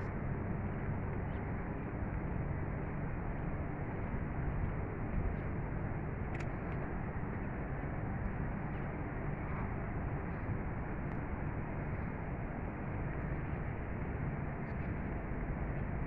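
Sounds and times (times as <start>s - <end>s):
city rumble and hiss: 0.0s - 16.0s
faint click: 6.3s - 6.8s.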